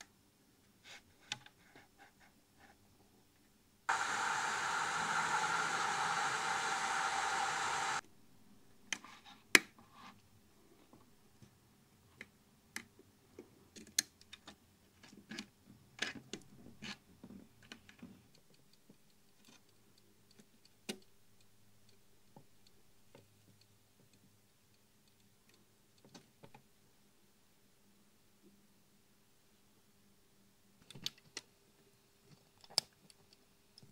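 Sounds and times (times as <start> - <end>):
faint steady hum: 3.9 - 8.8.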